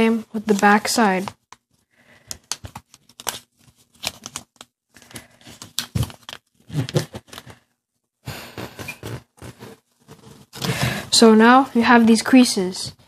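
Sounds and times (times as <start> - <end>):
paper crinkling and crackling: 0.3 - 7.7.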